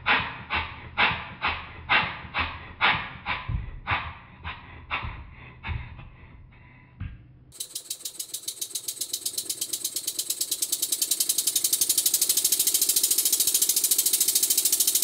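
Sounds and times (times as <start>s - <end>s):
model steam engine exhaust beats: 0.0s - 15.0s
fast sharp ticking: 7.5s - 15.0s.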